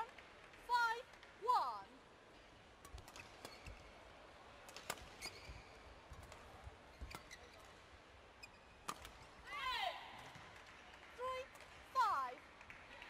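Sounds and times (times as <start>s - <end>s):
rackets hitting shuttlecock: 2.8s - 4.0s, 4.6s - 7.7s, 8.8s - 9.4s.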